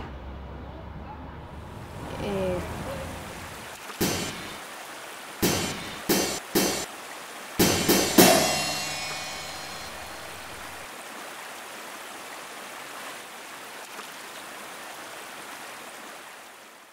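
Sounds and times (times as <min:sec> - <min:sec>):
bass drum and cymbal strokes: 0:05.4 - 0:06.9, 0:07.6 - 0:10.8.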